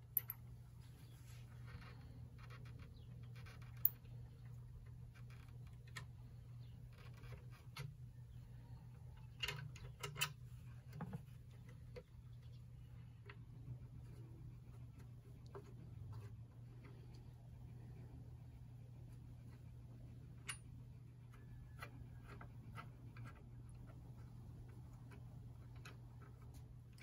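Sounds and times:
low steady hum: 0:00.0 - 0:27.0.

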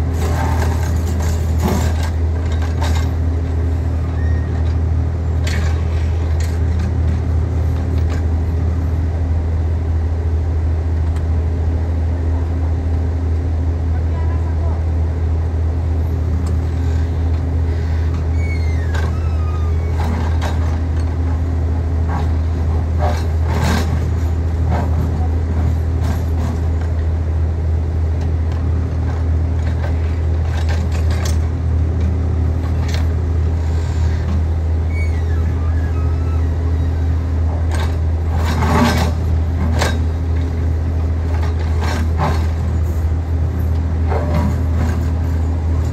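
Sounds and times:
diesel engine droning: 0:00.0 - 0:45.9.

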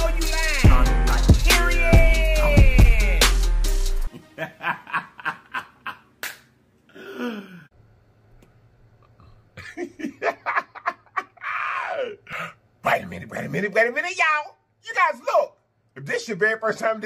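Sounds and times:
man laughing: 0:02.0 - 0:03.2, 0:04.1 - 0:06.2, 0:09.6 - 0:12.3.

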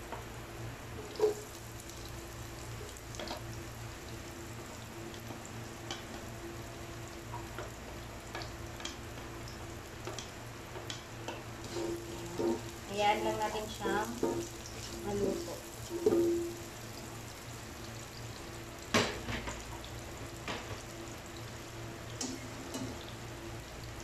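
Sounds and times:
garlic and onions sizzling in oil: 0:00.0 - 0:24.0
spatula knock on wok: 0:15.9 - 0:16.6.

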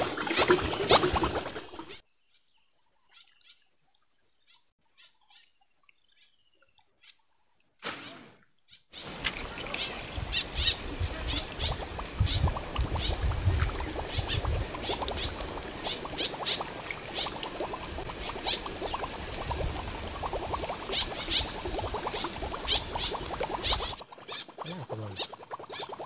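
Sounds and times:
birds chirping: 0:08.6 - 0:13.2, 0:22.2 - 0:26.0
wind on microphone: 0:09.5 - 0:15.6, 0:19.2 - 0:20.7.

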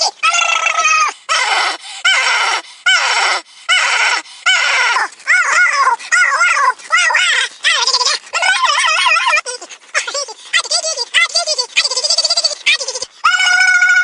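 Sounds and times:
man screaming in falsetto: 0:13.2 - 0:14.0.

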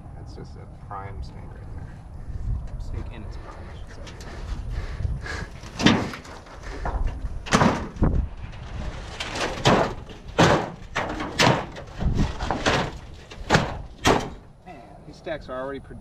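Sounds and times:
tin sheets clanking and scraping: 0:05.6 - 0:14.5.

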